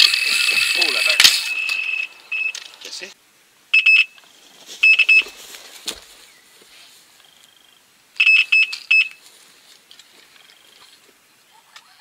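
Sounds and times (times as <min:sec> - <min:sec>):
electronic bite alarm beeps: 0:00.0 - 0:02.6, 0:03.7 - 0:04.2, 0:04.8 - 0:05.3, 0:08.2 - 0:09.2.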